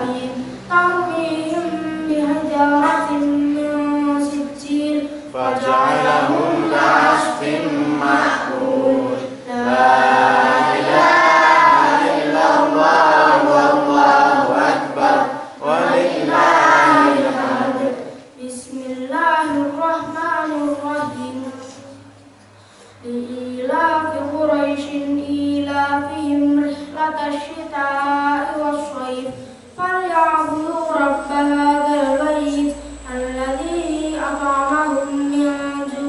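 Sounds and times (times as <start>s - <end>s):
boy chanting melodically: 0.0s - 22.2s, 22.8s - 36.0s.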